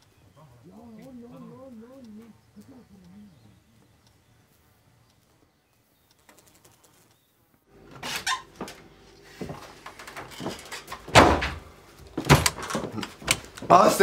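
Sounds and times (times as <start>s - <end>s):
wooden door creaking: 7.9s - 8.8s, 9.4s - 13.8s
door shutting with heavy thud: 9.4s - 13.4s.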